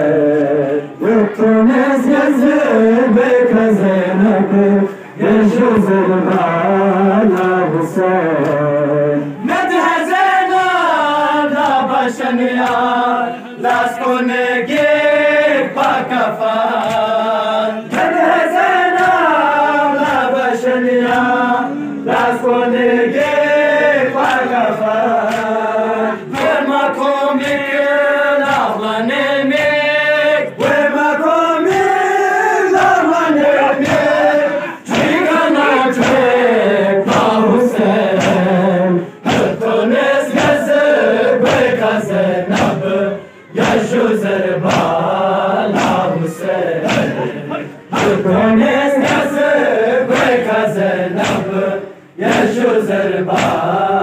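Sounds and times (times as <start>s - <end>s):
men chanting a lament in chorus: 0.0s - 54.0s
hands slapping chest: 12.6s - 12.9s, 16.8s - 17.1s, 25.2s - 25.6s, 26.3s - 26.6s, 33.8s - 34.3s, 34.9s - 36.3s, 37.1s - 37.4s, 38.1s - 38.5s, 40.3s - 40.7s, 41.4s - 41.8s, 42.5s - 42.9s, 43.6s - 44.0s, 44.6s - 45.1s, 45.7s - 46.1s, 46.8s - 47.2s, 47.9s - 48.3s, 49.0s - 50.6s, 51.2s - 51.6s, 52.2s - 52.6s, 53.3s - 53.7s.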